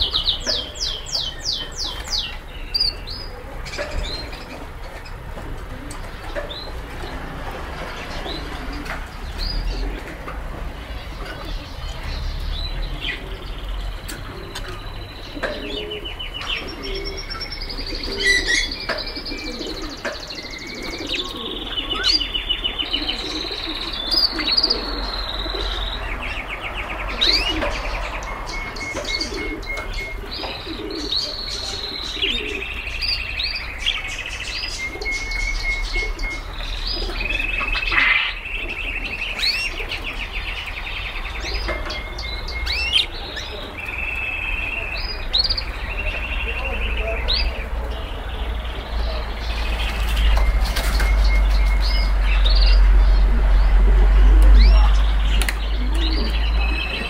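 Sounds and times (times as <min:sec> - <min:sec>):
canaries singing trills: 0:00.0 - 0:57.0
pigeon cooing: 0:03.3 - 0:07.3, 0:07.9 - 0:12.2, 0:12.8 - 0:32.8, 0:34.8 - 0:40.4, 0:55.6 - 0:57.0.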